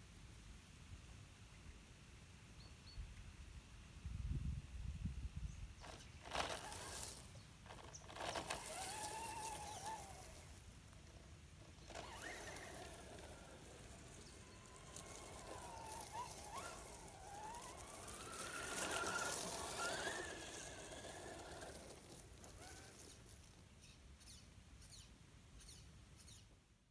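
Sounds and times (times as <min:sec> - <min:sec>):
electric motor whine of rc truck: 0:05.8 - 0:23.6.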